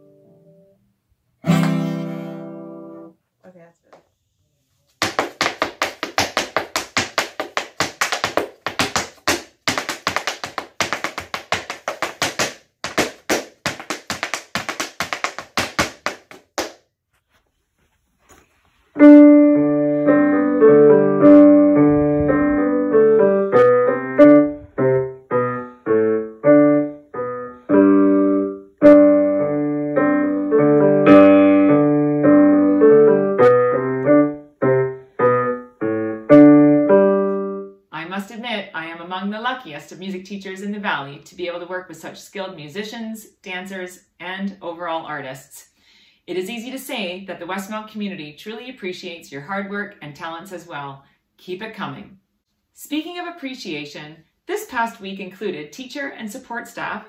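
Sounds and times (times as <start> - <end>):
dance shoes tapping on wooden floor: 5.0 - 16.8
digital piano playing: 19.0 - 37.7.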